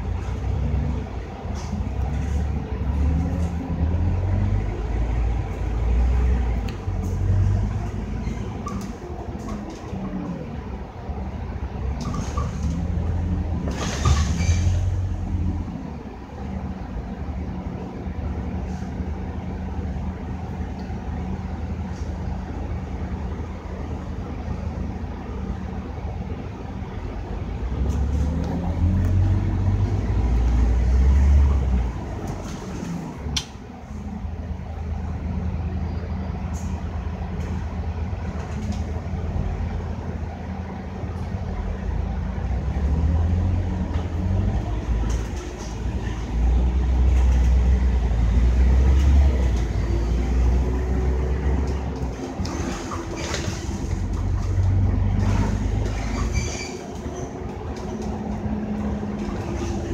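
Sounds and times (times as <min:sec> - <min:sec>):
bus diesel engine droning: 0:00.0 - 0:59.9.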